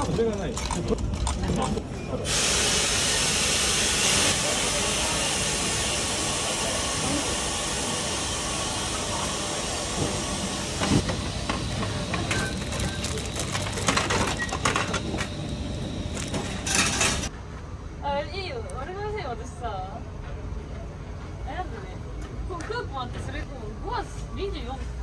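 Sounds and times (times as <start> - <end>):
vending machine hiss: 2.1 - 17.3
plastic wrapper crinkling: 12.5 - 14.9, 16.1 - 16.4.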